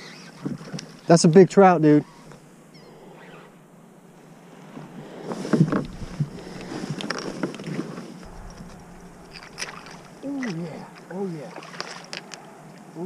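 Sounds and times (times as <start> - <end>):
wind: 0.0 - 13.0
water hiss: 5.2 - 12.3
fish thrashing against hull: 5.6 - 11.0.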